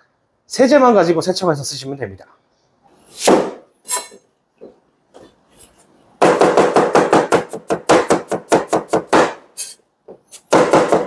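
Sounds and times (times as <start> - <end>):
cleaver chopping onion on board: 6.2 - 9.4.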